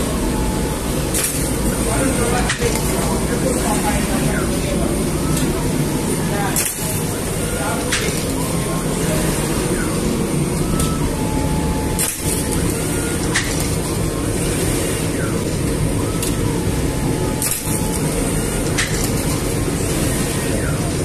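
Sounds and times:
machinery rumbling: 0.0s - 21.0s
sharp clicks: 7.9s - 8.4s, 18.7s - 19.3s.

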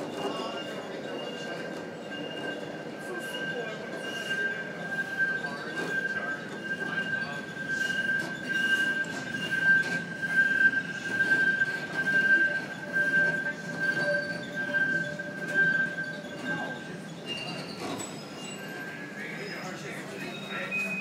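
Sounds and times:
steel wheels squealing on rails: 0.0s - 21.0s
streetcar rumble: 0.0s - 21.0s.

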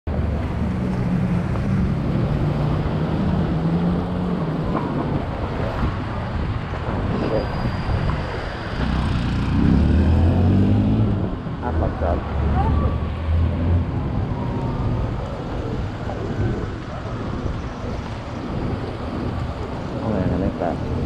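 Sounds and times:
road noise on wet road: 0.1s - 21.0s.

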